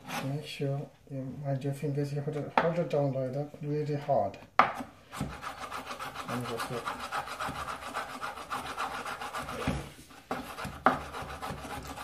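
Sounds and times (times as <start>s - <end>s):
knife chopping on wooden board: 4.6s - 5.6s, 7.0s - 12.0s.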